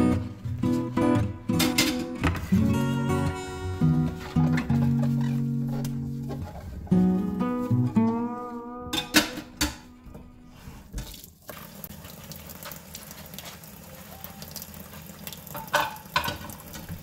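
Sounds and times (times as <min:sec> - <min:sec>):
guitar music: 0:00.0 - 0:10.6
dishes clinking: 0:08.9 - 0:09.9, 0:15.5 - 0:17.0
tap water running into a sink: 0:10.9 - 0:17.0.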